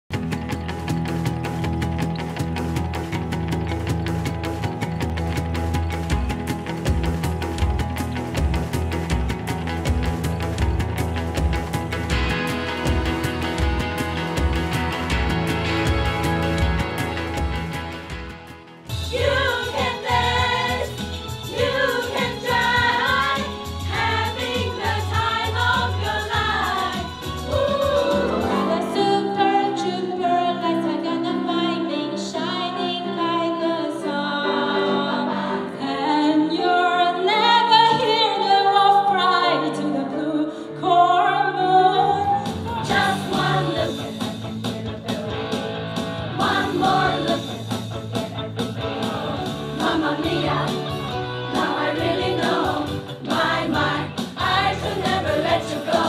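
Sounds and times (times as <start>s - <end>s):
song accompaniment: 0.1s - 56.0s
group of voices singing: 18.9s - 30.5s, 34.2s - 45.4s, 46.3s - 47.9s, 48.6s - 56.0s.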